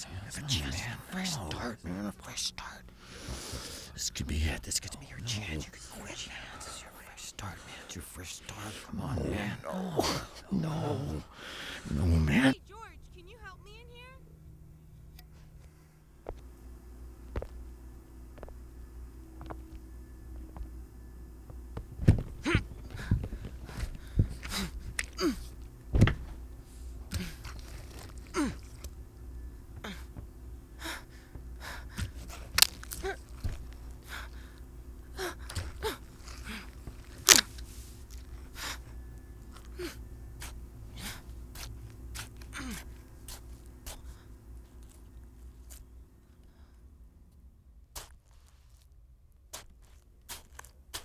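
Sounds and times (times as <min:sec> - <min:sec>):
low steady hum: 0:00.0 - 0:51.0
irregular sharp thuds: 0:21.4 - 0:25.1, 0:25.8 - 0:26.5.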